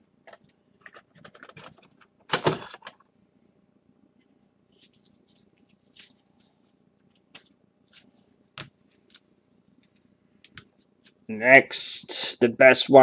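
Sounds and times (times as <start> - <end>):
soft rustles: 4.7 - 9.2.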